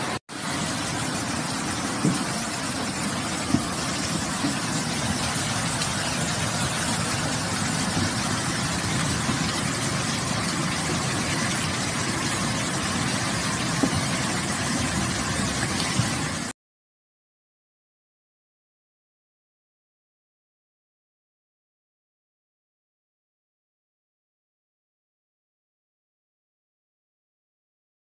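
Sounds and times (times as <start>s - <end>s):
car engines rumbling: 0.0s - 16.5s
heavy rain and floodwater rushing: 0.0s - 16.6s.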